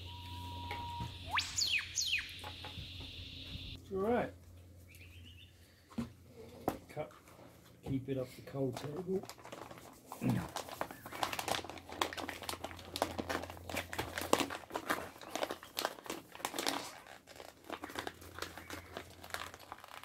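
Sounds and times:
food packet crinkling: 8.9 - 20.0.

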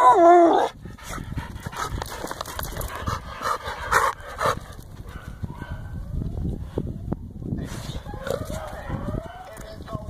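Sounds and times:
dogs panting: 0.7 - 5.5.

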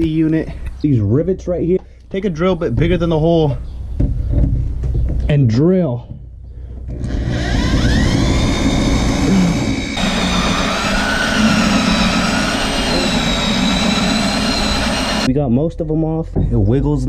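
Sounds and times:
cordless drill drilling metal: 6.9 - 15.3.

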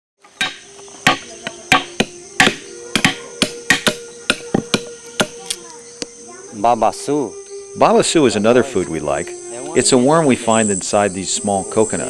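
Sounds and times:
coconut struck on axe blade: 0.3 - 5.6.

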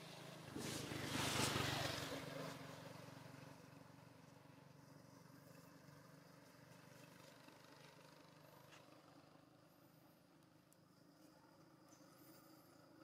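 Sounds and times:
vehicle passing: 0.0 - 3.4.

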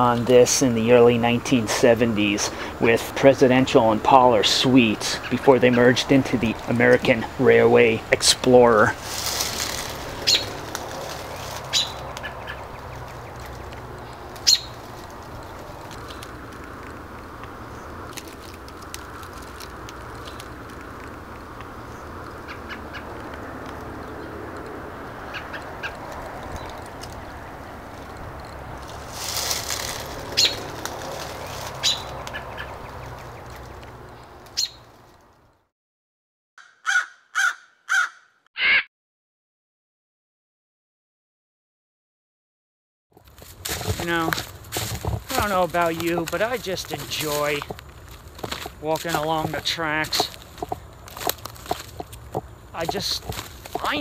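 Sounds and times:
bird chirps: 10.2 - 10.6, 11.2 - 14.9, 30.4 - 30.7, 31.8 - 33.6, 34.2 - 34.9
short sharp bird calls: 11.7 - 12.6, 14.4 - 14.8
crow cawing: 22.4 - 23.2, 36.6 - 38.8.

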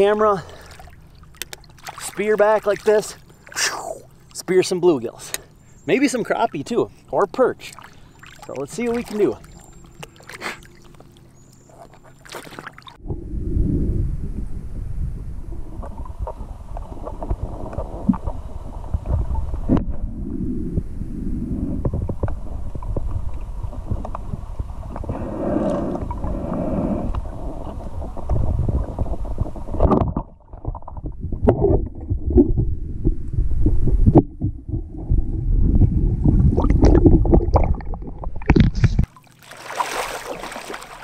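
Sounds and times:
water crackling and clicking: 0.6 - 5.5, 7.3 - 13.0, 21.9 - 25.1, 36.6 - 39.4
muffled underwater rumble: 12.9 - 39.1.

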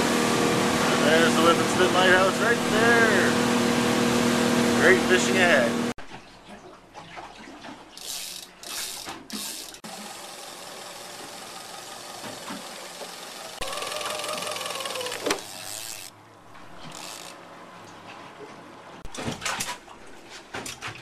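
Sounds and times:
boat engine running: 0.0 - 6.0, 9.7 - 19.0
water noise: 0.0 - 21.0.

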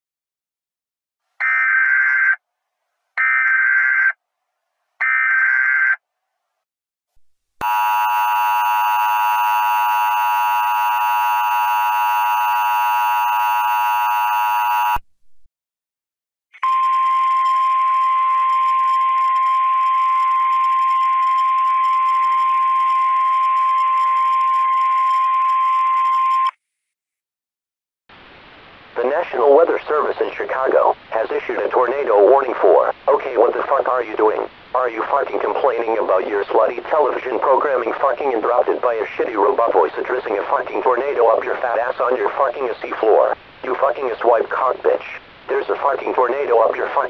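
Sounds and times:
steady single-pitch alert tone: 7.6 - 15.0.

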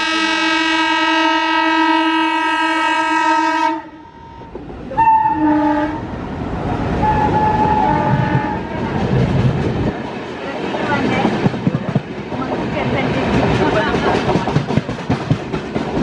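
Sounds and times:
locomotive horn blast: 0.0 - 4.4, 5.0 - 6.1, 7.0 - 8.7
train rumbling past: 0.0 - 16.0.

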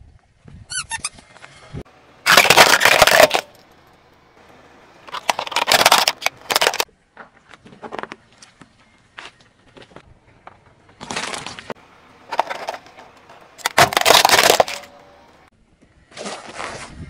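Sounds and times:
tyre crushing toys: 2.2 - 3.6, 5.0 - 6.9, 11.0 - 14.9
plastic toys cracking: 2.3 - 3.8, 5.0 - 6.9, 12.3 - 14.9.

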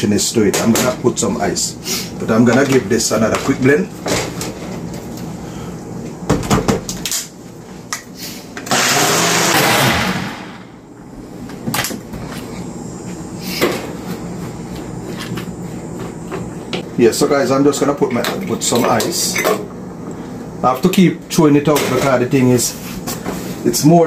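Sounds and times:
blender running: 8.6 - 10.8.

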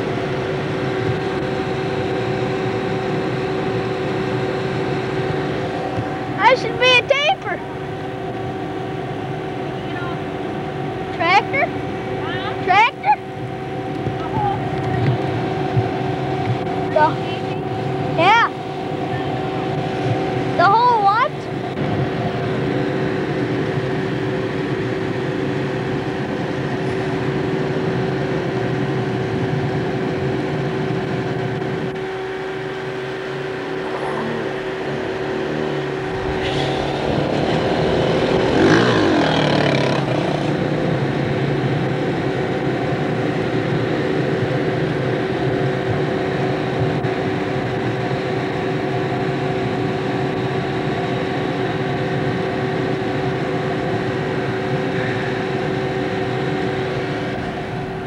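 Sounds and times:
tractor engine running: 0.0 - 58.0
rushing noise: 32.9 - 40.8.

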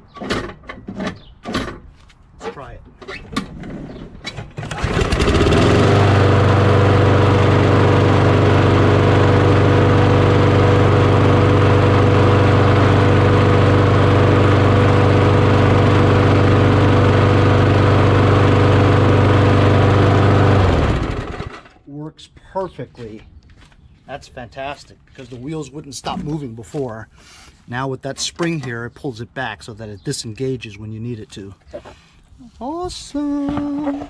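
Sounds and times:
lawn mower engine running: 4.6 - 21.8.

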